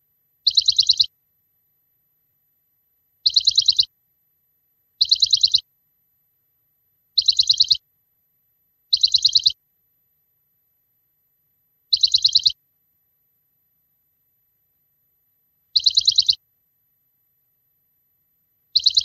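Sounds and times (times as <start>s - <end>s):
bird-like chirping trill: 0.4s - 1.2s, 3.2s - 4.0s, 4.9s - 5.7s, 7.1s - 7.9s, 8.9s - 9.6s, 11.9s - 12.6s, 15.7s - 16.4s, 18.6s - 19.0s.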